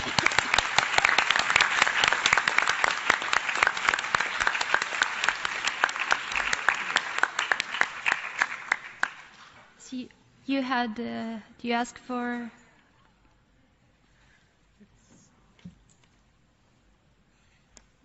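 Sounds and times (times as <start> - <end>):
audience applause: 0.0 - 9.4
sharp close hand claps: 0.0 - 9.5.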